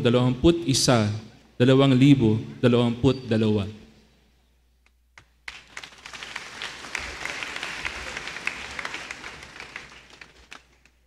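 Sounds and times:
crowd clapping: 0:05.2 - 0:11.0.

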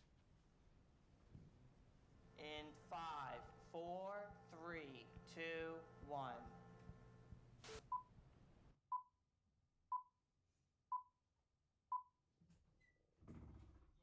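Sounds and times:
tv static hiss: 0:02.2 - 0:07.9.

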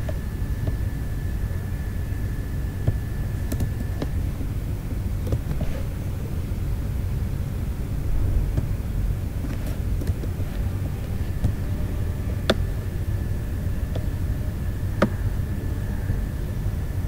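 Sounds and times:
faint high whine: 0:00.0 - 0:17.0
low background rumble: 0:00.0 - 0:17.0
computer mouse clicks: 0:03.5 - 0:04.1.

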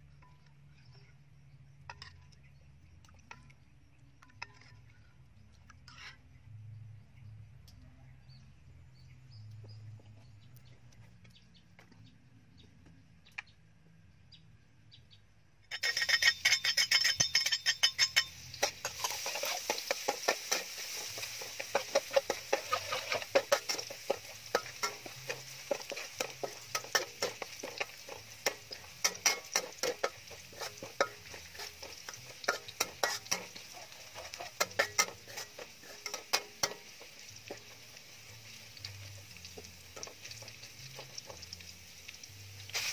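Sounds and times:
metal spatula scraping a wok: 0:04.3 - 0:04.8, 0:05.8 - 0:06.3, 0:15.7 - 0:42.9
garlic sizzling in hot oil: 0:15.7 - 0:42.9.

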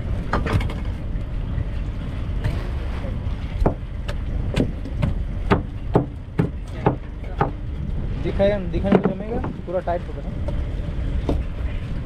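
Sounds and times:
boat engine rumbling: 0:00.0 - 0:12.0
sharp knocks: 0:04.5 - 0:07.6.

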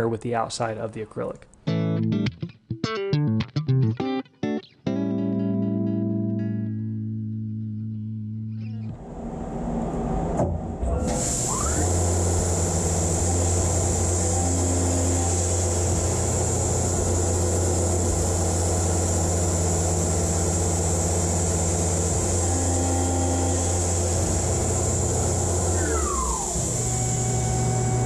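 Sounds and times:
milling machine spindle whining: 0:10.9 - 0:28.0.

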